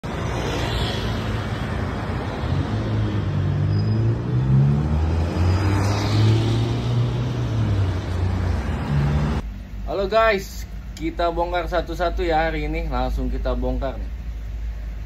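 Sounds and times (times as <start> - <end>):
tyre and road noise: 0.0 - 9.8
vehicle engines passing: 0.0 - 10.0.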